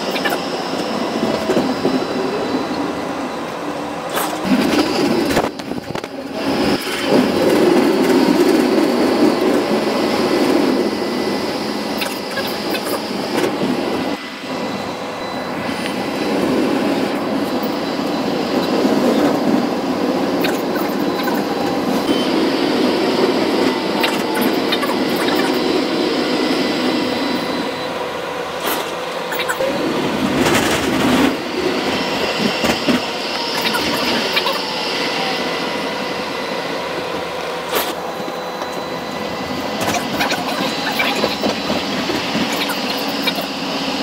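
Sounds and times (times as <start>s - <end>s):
tram wheels rumbling on rails: 0.0s - 44.0s
faint high ring: 22.0s - 22.7s.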